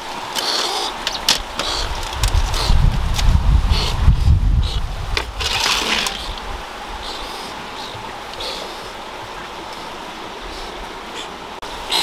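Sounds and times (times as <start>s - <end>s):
wind buffeting microphone: 1.2s - 8.2s
leafy greens rustling: 4.9s - 11.3s.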